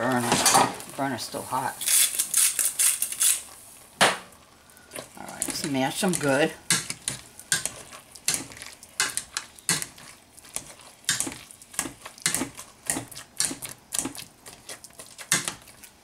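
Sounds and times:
potato masher knocking pot: 0:11.1 - 0:14.2, 0:15.3 - 0:15.6.

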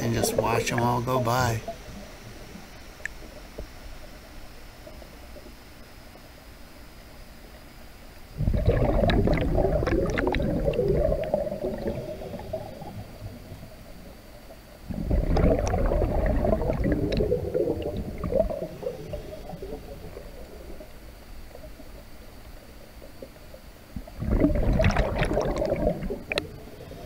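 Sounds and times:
air bubbling underwater: 0:08.4 - 0:13.0, 0:14.9 - 0:20.7, 0:24.0 - 0:26.5.

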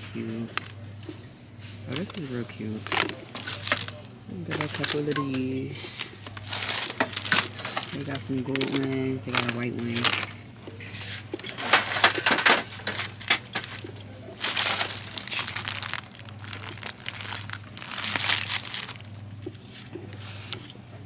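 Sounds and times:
steady low hum: 0:00.0 - 0:21.0
plastic packaging crinkling: 0:01.9 - 0:10.5, 0:11.4 - 0:19.4.

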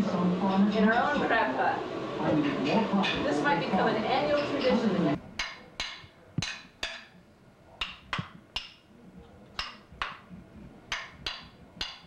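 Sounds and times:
toy mallet tapping a toy: 0:05.4 - 0:07.1, 0:07.8 - 0:08.8, 0:10.9 - 0:12.0.

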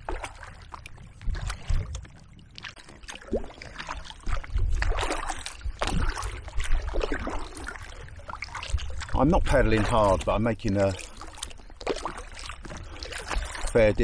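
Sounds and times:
paddle splashing in water: 0:00.0 - 0:14.0
wind rumbling on microphone: 0:00.0 - 0:14.0.

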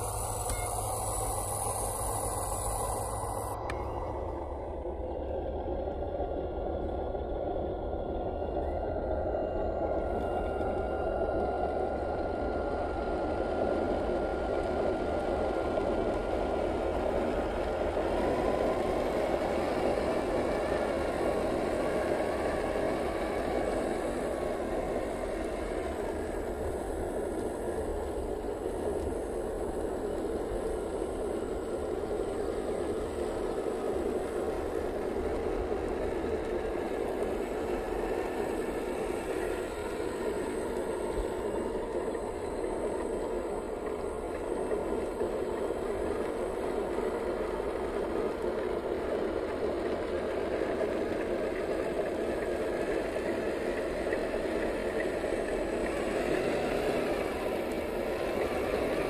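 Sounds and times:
toy car electric motor: 0:00.0 - 0:03.6.

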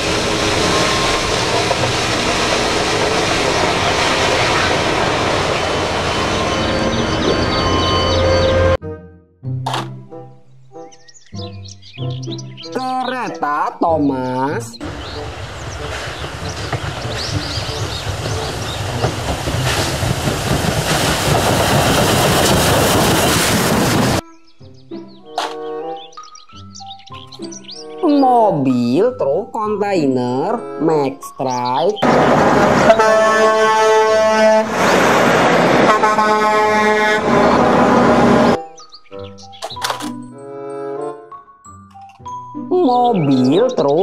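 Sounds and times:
steam locomotive rumbling past: 0:00.0 - 0:08.8, 0:14.8 - 0:24.2, 0:32.0 - 0:38.6
diesel engine running: 0:14.8 - 0:24.2, 0:32.0 - 0:38.6.

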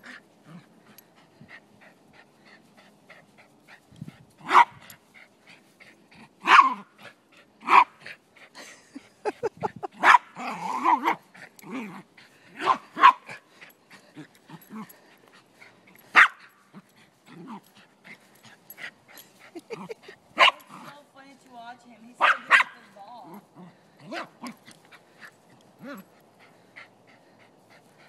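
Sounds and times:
dog barking: 0:04.4 - 0:04.8, 0:06.4 - 0:06.8, 0:10.0 - 0:10.3, 0:22.2 - 0:22.8.

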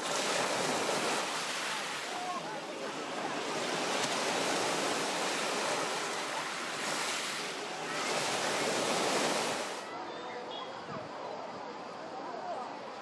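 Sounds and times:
waves washing over pebbles: 0:00.0 - 0:09.9.

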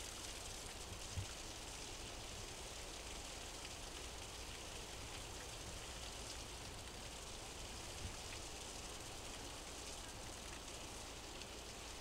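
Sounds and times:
faint hiss of running water: 0:00.0 - 0:12.0.

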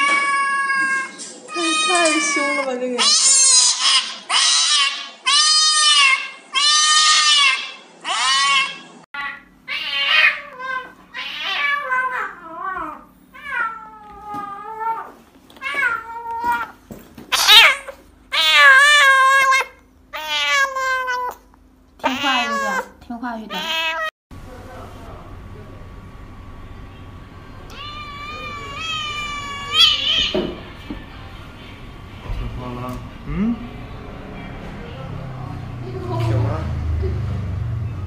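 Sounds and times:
kitten meowing: 0:00.0 - 0:21.4, 0:22.0 - 0:22.9, 0:23.5 - 0:24.1, 0:27.7 - 0:30.4
cats yowling: 0:00.0 - 0:24.1, 0:27.7 - 0:30.7.

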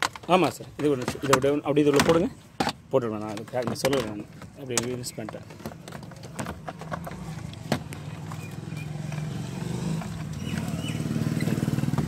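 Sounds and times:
plastic clicks and taps: 0:00.0 - 0:08.0
engine hum: 0:05.2 - 0:12.0.

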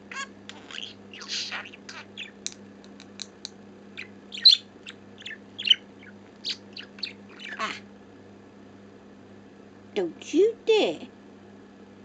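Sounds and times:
budgerigar chirping: 0:00.1 - 0:02.4, 0:04.0 - 0:07.8.

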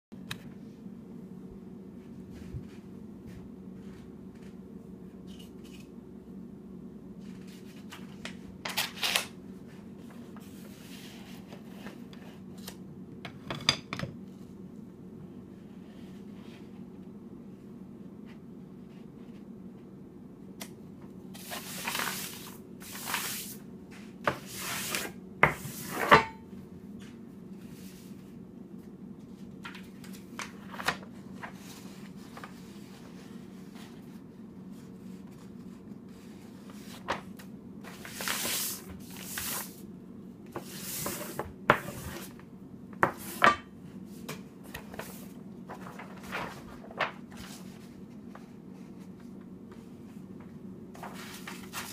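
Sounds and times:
steady low hum: 0:00.2 - 0:08.7, 0:09.3 - 0:51.9
paper rustling and brush swishing: 0:21.3 - 0:26.1, 0:29.2 - 0:39.8, 0:40.5 - 0:42.4, 0:44.0 - 0:50.2, 0:51.0 - 0:51.9.

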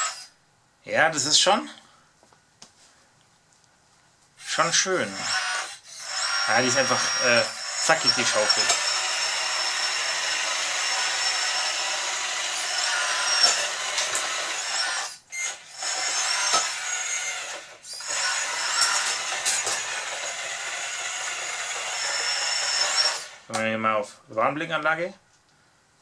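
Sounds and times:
electric hydraulic pump whining: 0:05.2 - 0:23.5.

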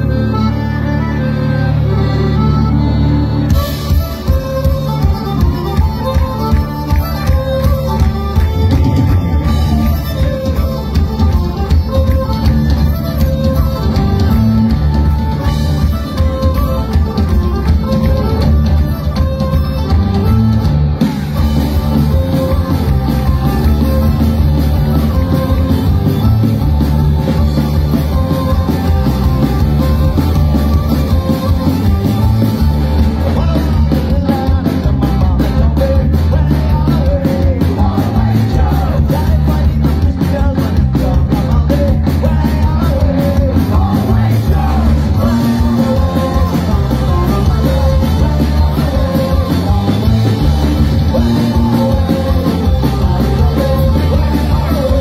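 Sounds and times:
accordion: 0:00.0 - 0:55.0
bass guitar: 0:00.0 - 0:55.0
drum kit: 0:03.4 - 0:55.0
person singing: 0:32.7 - 0:55.0.

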